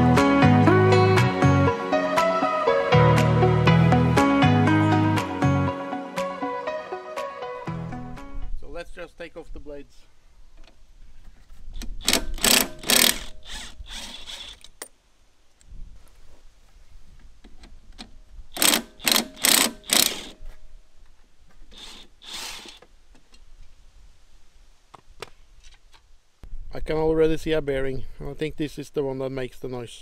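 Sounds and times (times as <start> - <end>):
impact wrench hammering in bursts: 12.0 - 13.7, 18.6 - 20.4.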